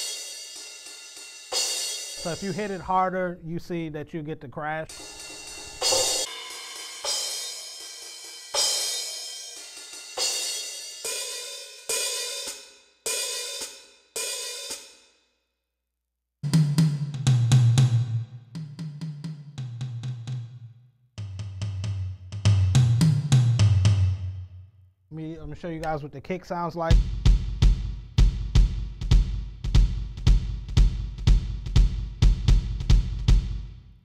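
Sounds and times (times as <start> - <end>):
fast drum hits around kit: 0.0 - 2.8, 4.9 - 12.6, 16.4 - 19.8, 21.2 - 24.2, 26.9 - 33.8
electronic crash cymbal hits: 4.9 - 10.4.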